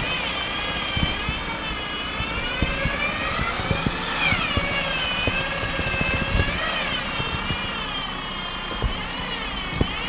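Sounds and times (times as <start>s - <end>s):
electric winch whining: 0.0s - 10.0s
low knocks and crunches: 0.8s - 7.8s, 8.7s - 9.1s, 9.7s - 10.0s.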